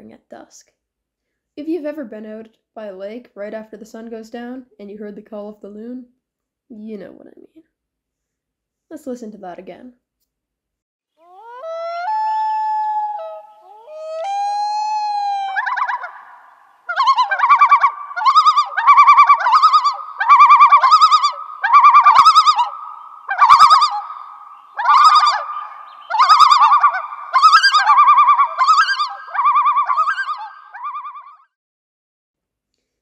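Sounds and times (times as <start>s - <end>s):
loon yodelling: 11.2s - 31.0s.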